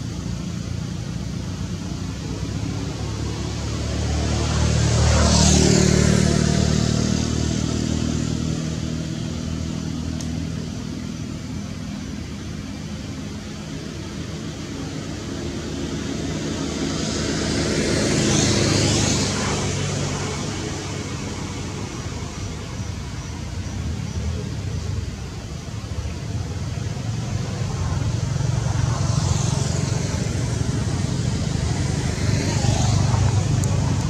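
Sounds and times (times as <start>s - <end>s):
engine hum: 0.0s - 34.0s
vehicle passing: 2.4s - 10.0s, 15.6s - 34.0s.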